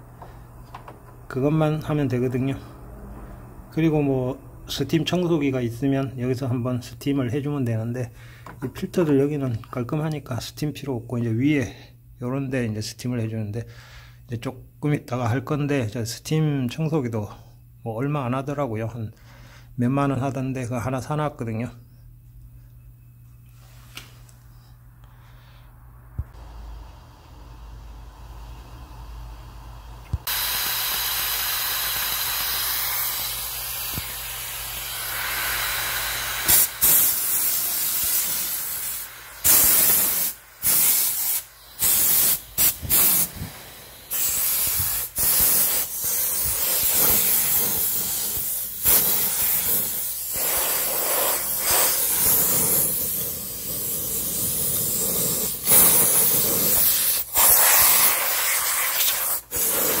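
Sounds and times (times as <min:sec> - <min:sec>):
steam cleaner hissing: 0:26.6 - 1:00.0.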